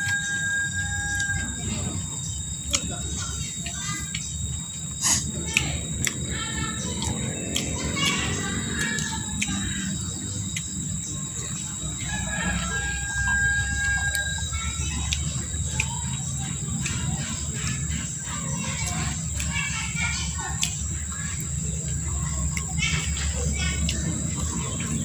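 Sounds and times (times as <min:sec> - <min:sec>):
rooster crowing: 0:00.0 - 0:02.0, 0:11.8 - 0:15.0
chickens calling: 0:00.0 - 0:25.0.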